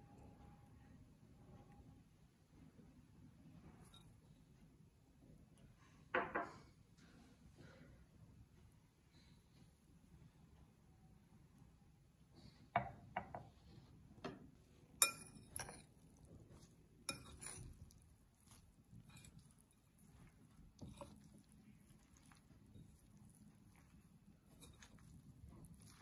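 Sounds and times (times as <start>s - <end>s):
metal spoon clinking on glass bowl: 15.0s - 16.0s, 17.1s - 22.4s.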